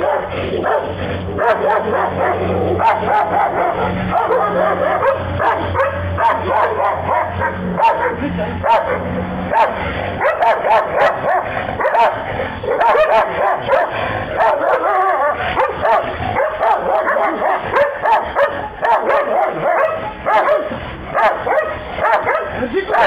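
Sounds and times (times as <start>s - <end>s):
dogs barking: 0.0s - 23.0s.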